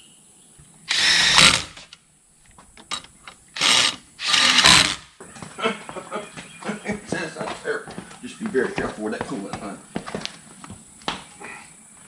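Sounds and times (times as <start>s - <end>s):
power driver spinning bolts: 0.9s - 2.0s, 2.8s - 5.1s.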